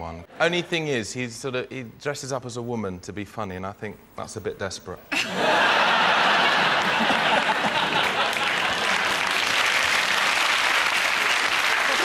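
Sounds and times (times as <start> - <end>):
studio audience applauding: 5.6 - 12.0.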